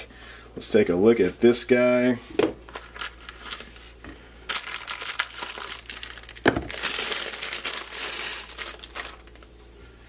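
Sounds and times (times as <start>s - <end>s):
plastic bag crinkling: 2.7s - 3.8s, 4.5s - 9.5s.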